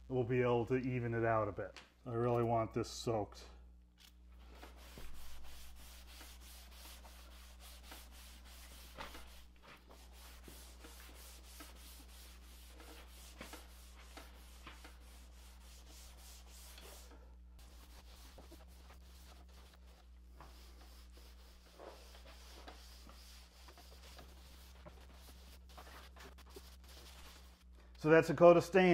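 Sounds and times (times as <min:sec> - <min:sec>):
rag rubbing on wood: 0:04.5 - 0:27.6.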